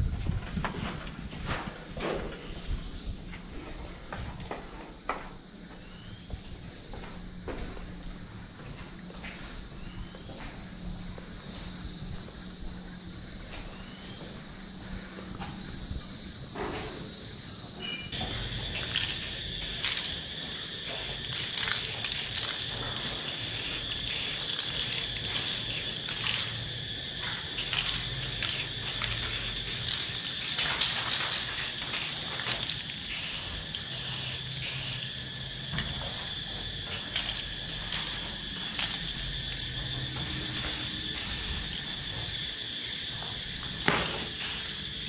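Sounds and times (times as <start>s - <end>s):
spray paint can hissing: 15.3s - 45.0s.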